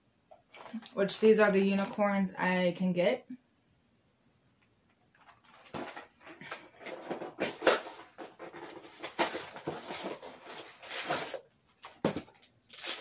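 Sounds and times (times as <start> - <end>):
cardboard packaging rustling: 5.1 - 13.0.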